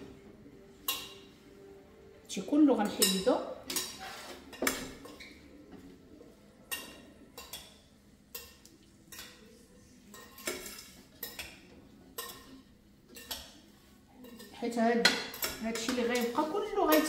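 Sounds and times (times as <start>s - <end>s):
metal utensil clinking on pan: 0.8s - 1.2s, 2.8s - 5.4s, 6.7s - 9.5s, 10.1s - 11.6s, 12.2s - 13.6s, 14.2s - 17.0s.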